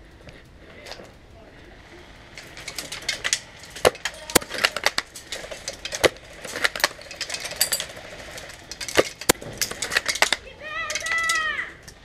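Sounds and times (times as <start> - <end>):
airsoft guns firing: 2.6 - 11.2.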